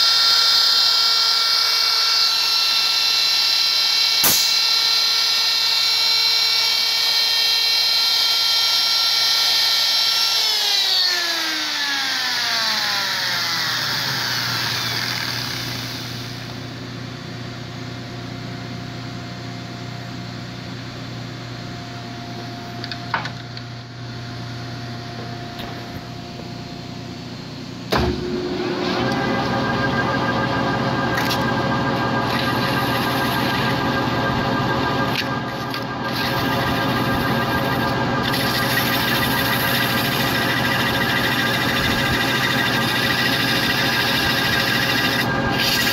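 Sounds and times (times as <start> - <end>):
die grinder whining: 0.0 - 16.7, 28.2 - 45.9
low machine hum: 12.8 - 45.9.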